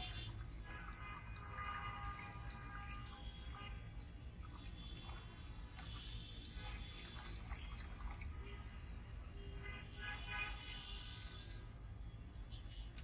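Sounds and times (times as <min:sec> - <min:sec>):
tap water running into balloon: 0:00.0 - 0:08.4.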